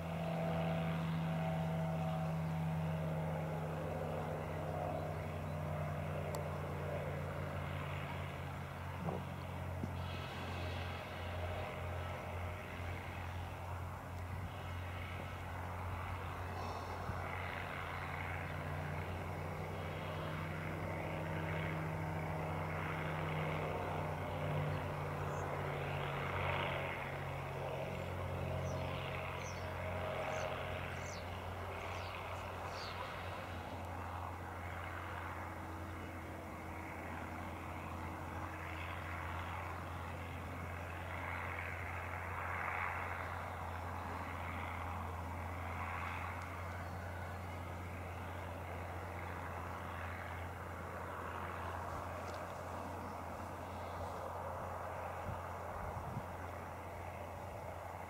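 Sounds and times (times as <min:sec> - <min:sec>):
propeller airplane droning overhead: 0:00.0 - 0:58.0.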